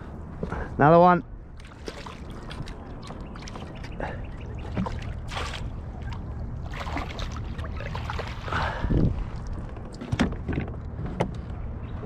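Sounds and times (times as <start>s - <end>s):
fish splashing at surface: 1.6s - 8.8s.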